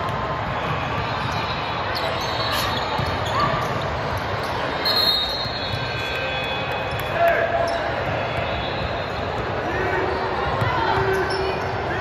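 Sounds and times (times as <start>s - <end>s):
ball bouncing on indoor court: 0.0s - 12.0s
crowd noise: 0.0s - 12.0s
short high-pitched squeak: 2.0s - 3.6s.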